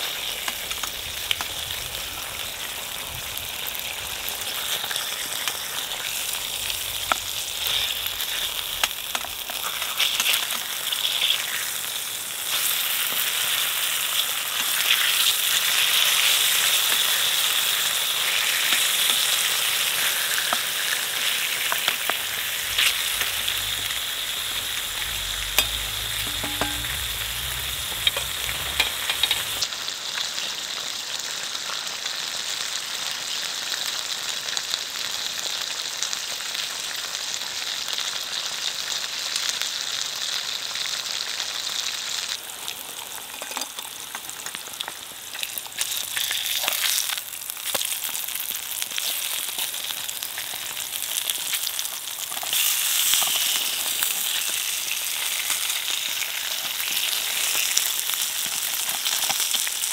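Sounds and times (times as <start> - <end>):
bacon sizzling in a frying pan: 0.0 - 59.9
fat crackling and spitting: 20.6 - 26.3.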